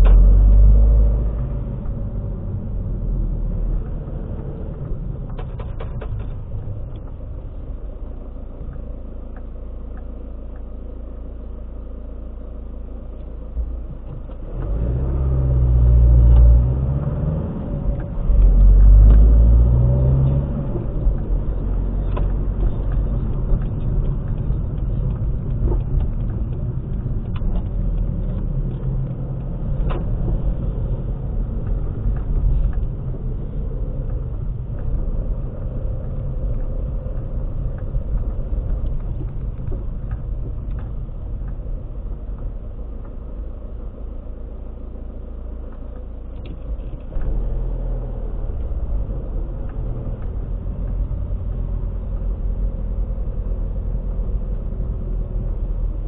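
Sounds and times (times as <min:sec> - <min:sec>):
car engine and road noise: 0:00.0 - 0:56.0
engine revving: 0:14.4 - 0:23.2.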